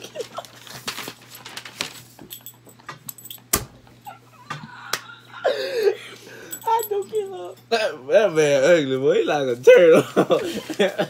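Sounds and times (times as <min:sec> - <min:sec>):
people laughing breathlessly: 0:04.1 - 0:06.5.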